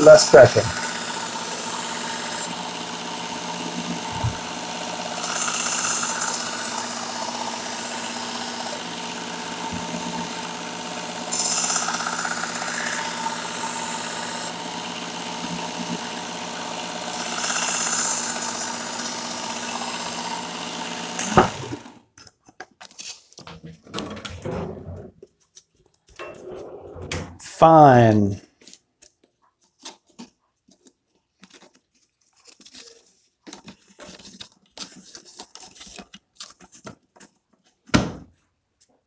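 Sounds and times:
belt sharpener running: 0.0 - 22.0.

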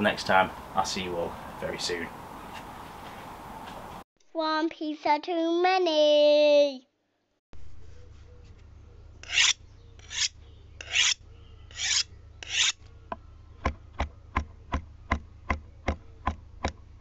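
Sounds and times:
faint low hum: 7.6 - 17.0
rasping scrapes: 9.2 - 12.8.

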